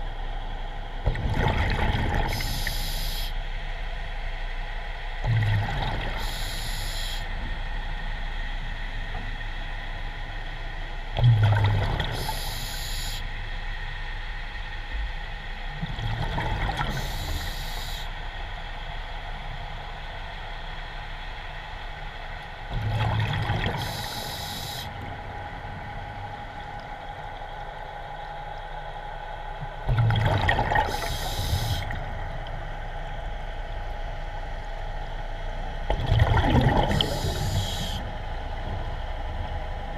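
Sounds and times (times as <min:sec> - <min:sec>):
steady hum: 0:00.0 - 0:39.9
diver breathing through regulator: 0:23.7 - 0:25.0, 0:30.9 - 0:32.0, 0:37.0 - 0:38.1.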